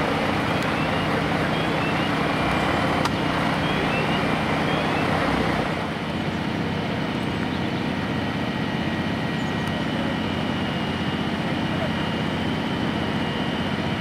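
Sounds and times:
heavy diesel engines running: 0.0 - 14.0.

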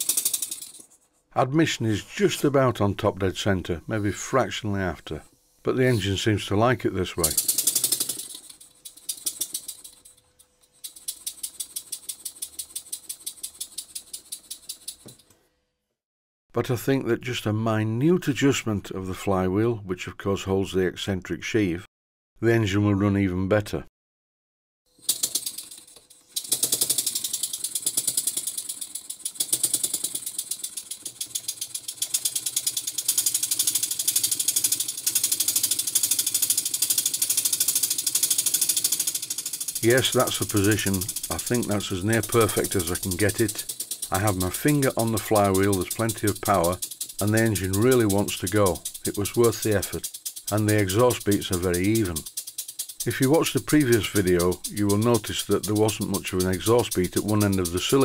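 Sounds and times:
model steam engine chuffing: 0.0 - 0.8, 7.0 - 10.0, 10.8 - 15.0, 25.0 - 58.0.

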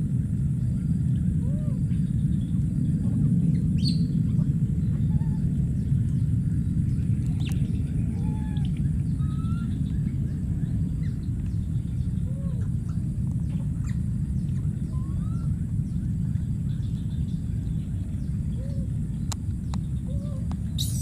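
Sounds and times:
low rumble: 0.0 - 21.0
thin high hiss: 20.7 - 21.0.

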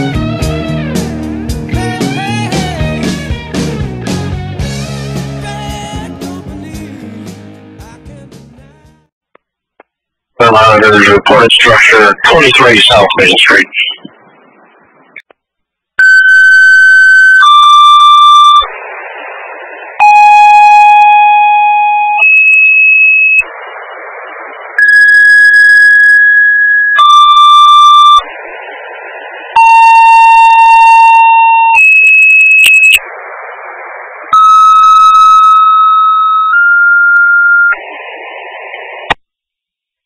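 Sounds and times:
radio hiss bursts: 10.4 - 15.2, 17.4 - 26.3, 32.7 - 35.3, 37.6 - 39.2.

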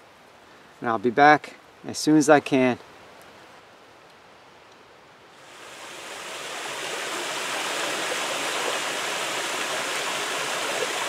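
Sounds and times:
stream rushing over rocks: 5.4 - 11.0.

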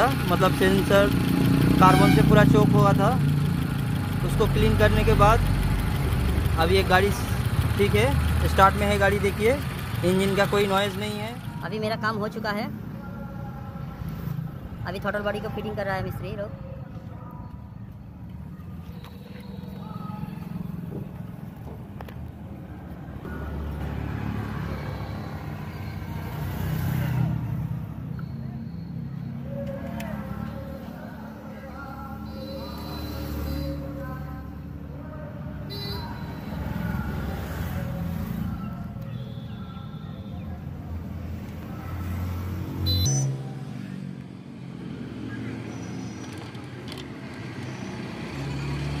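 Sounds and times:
car engine idling: 0.0 - 12.6.

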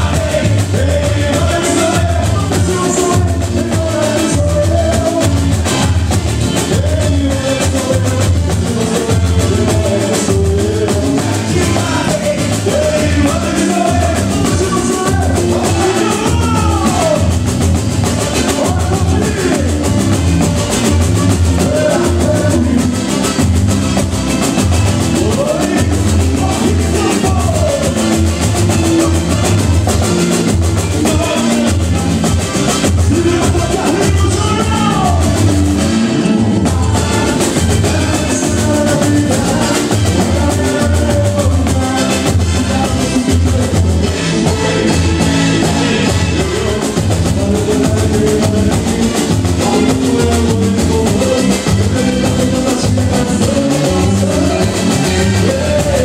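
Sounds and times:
guitar strumming: 0.0 - 56.0
hand percussion: 0.0 - 56.0
heavy bass drum beat: 0.0 - 56.0
man singing through pa: 0.0 - 56.0.

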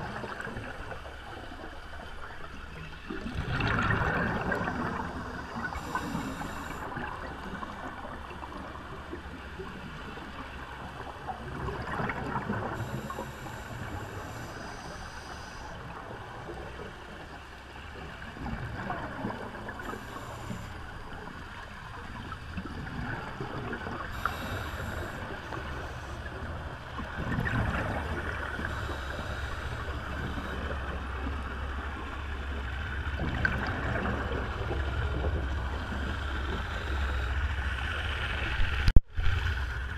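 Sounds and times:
exhaled bubbles rushing up: 3.1 - 6.1
scuba regulator breathing: 4.7 - 7.0, 12.6 - 16.0, 19.8 - 21.0, 24.0 - 26.6, 28.0 - 31.4, 36.1 - 38.0.

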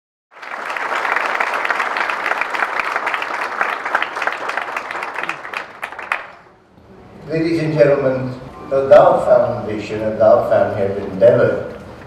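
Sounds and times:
audience applauding: 0.3 - 6.6.

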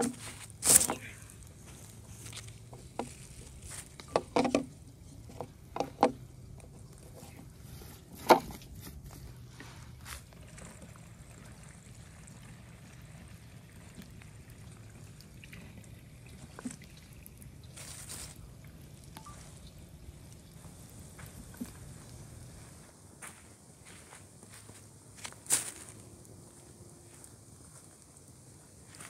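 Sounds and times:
liquid sounds: 9.0 - 22.8.

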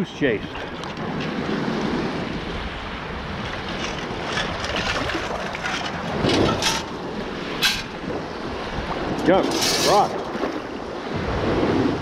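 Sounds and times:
wind buffeting microphone: 0.0 - 12.0
water lapping around legs: 3.0 - 10.7.

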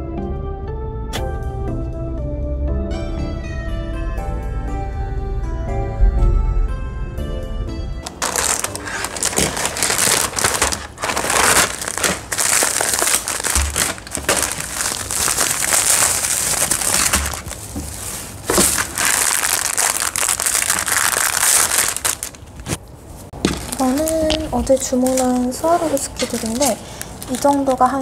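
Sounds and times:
plastic packaging crinkling: 8.1 - 28.0.

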